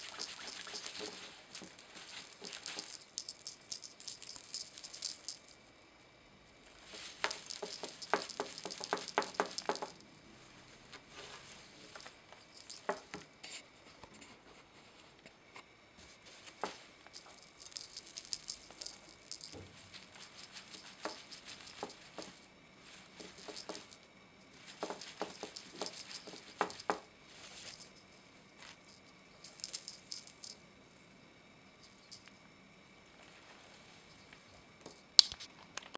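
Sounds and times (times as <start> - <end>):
cat toy jingling and rattling: 0.0 - 5.6, 6.7 - 10.8, 11.4 - 13.4, 16.6 - 30.6.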